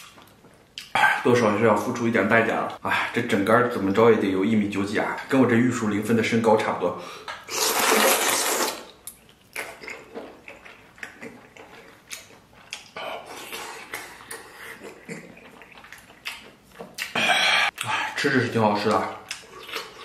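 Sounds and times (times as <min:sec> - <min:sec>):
loud slurping: 0:07.5 - 0:08.9
open-mouthed chewing: 0:07.5 - 0:18.1, 0:18.9 - 0:20.0.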